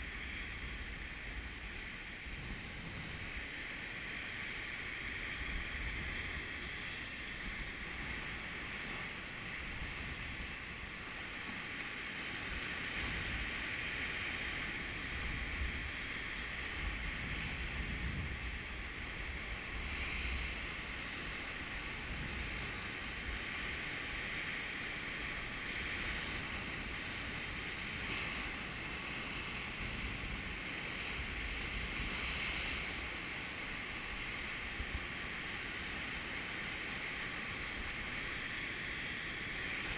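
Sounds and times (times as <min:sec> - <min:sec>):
wind buffeting microphone: 0:00.0 - 0:03.6, 0:12.5 - 0:23.8
surf breaking over rocks: 0:00.0 - 0:39.9.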